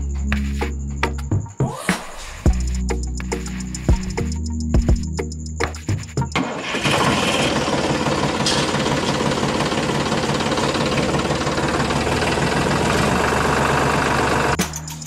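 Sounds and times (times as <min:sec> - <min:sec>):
tractor engine running: 0:06.2 - 0:14.6.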